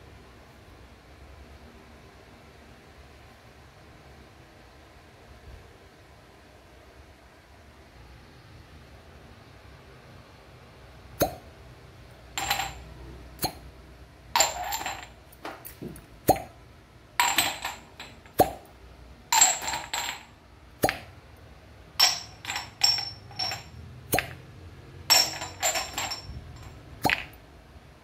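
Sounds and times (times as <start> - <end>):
glass cups clinking: 12.4 - 13.6, 14.4 - 16.5, 17.2 - 18.6, 19.3 - 20.3, 22.0 - 24.4, 25.1 - 27.4
suction cups popping off: 20.8 - 21.1.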